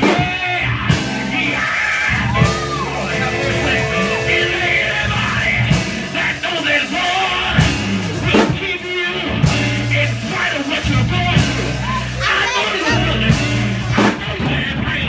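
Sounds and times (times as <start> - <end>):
live band music: 2.0 - 8.4.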